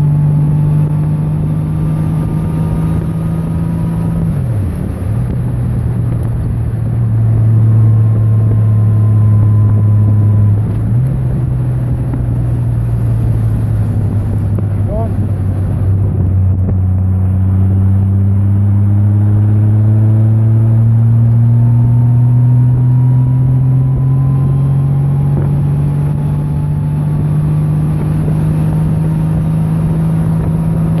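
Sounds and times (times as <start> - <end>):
motorcycle engine rising pitch: 0.0 - 31.0.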